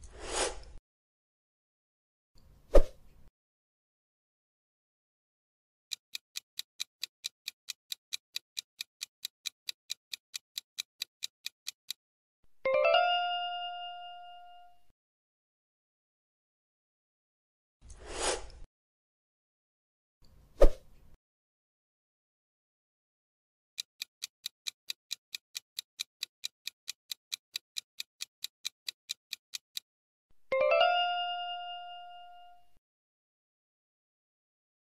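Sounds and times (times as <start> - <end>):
clock-like timer ticking: 5.9 - 12.0, 23.8 - 29.9
bright chime with rising notes: 30.5 - 32.6.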